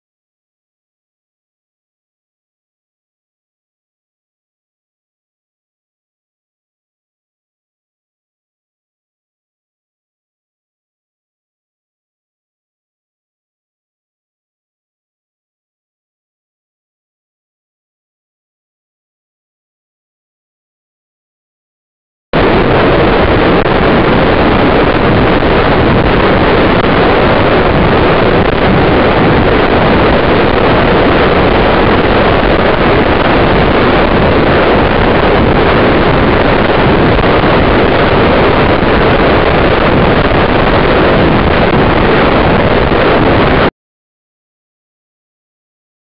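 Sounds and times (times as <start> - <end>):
wind buffeting microphone: 22.4 - 43.7.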